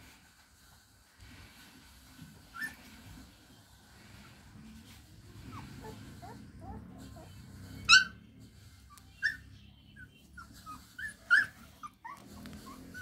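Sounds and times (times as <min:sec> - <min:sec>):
puppies whining and yelping: 0:02.5 - 0:02.9, 0:05.4 - 0:08.2, 0:08.9 - 0:09.5, 0:10.4 - 0:13.0.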